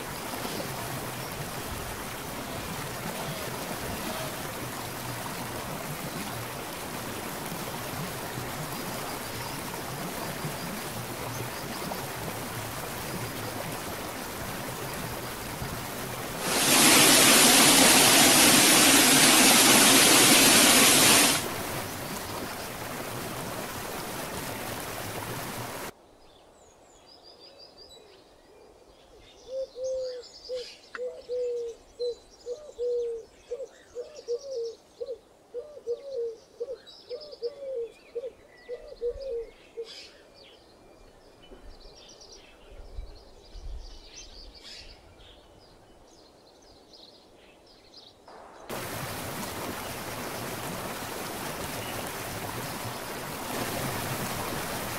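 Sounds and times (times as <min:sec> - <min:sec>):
waterfall rushing: 0:00.0 - 0:25.9, 0:48.3 - 0:54.9.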